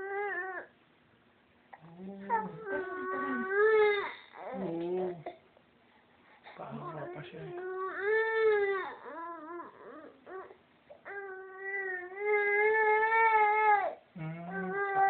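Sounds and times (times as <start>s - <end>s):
baby crying: 2.2s - 4.7s, 6.7s - 15.0s.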